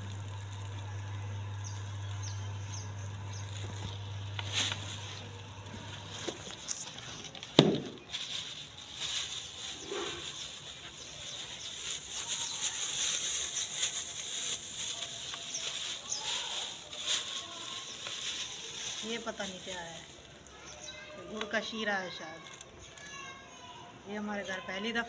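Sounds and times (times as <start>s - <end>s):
steady low hum: 0.0s - 8.0s
plastic bags crinkling: 0.0s - 23.8s.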